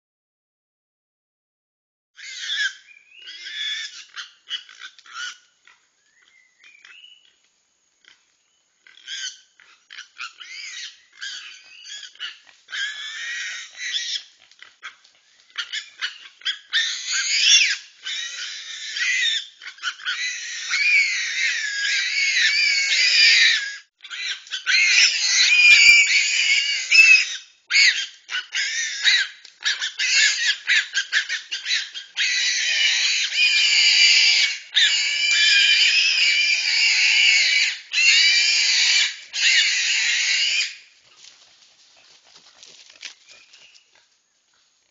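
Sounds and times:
wild pigs squealing and grunting: 2.2 - 5.8, 8.8 - 40.9.

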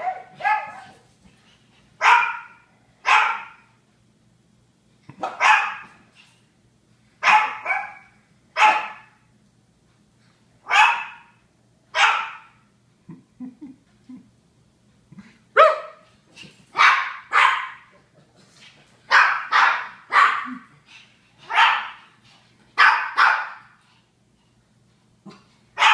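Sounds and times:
small dogs barking: 0.0 - 1.0, 2.0 - 3.6, 5.1 - 6.0, 7.2 - 9.2, 10.7 - 11.4, 12.0 - 12.6, 15.6 - 16.0, 16.8 - 18.0, 19.1 - 20.7, 21.4 - 22.0, 22.8 - 23.8, 25.3 - 25.9.

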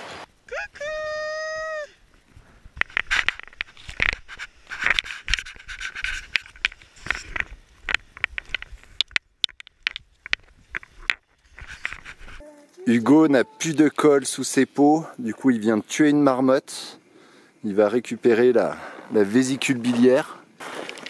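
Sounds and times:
gear rubbing against camera: 2.8 - 9.0, 10.3 - 14.0.

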